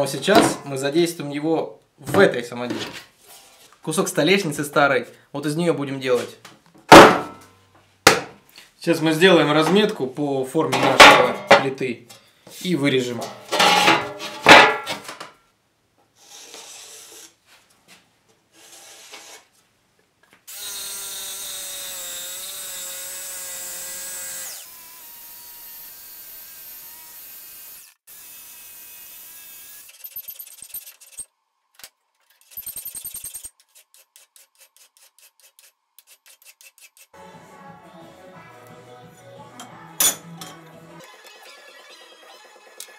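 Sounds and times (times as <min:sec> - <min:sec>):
electric jigsaw cutting: 0:20.5 - 0:31.0.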